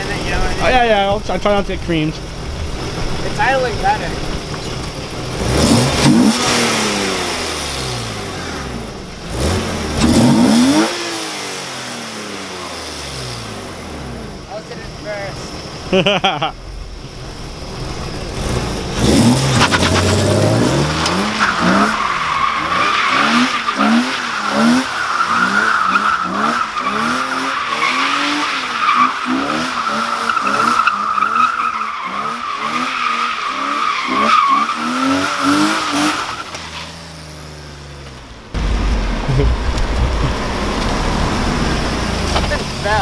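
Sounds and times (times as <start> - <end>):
car engine revving: 0.0 - 43.0
tyres squealing on wet asphalt: 17.4 - 37.4.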